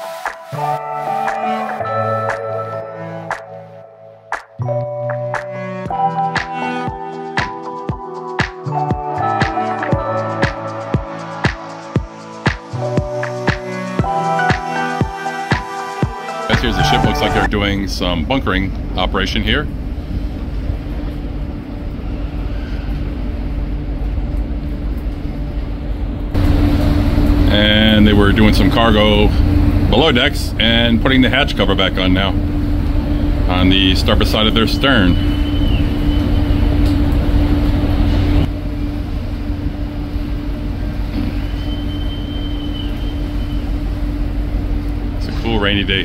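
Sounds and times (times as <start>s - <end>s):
ship machinery droning: 12.7s - 46.0s
faint high whine: 16.5s - 18.6s, 26.4s - 46.0s.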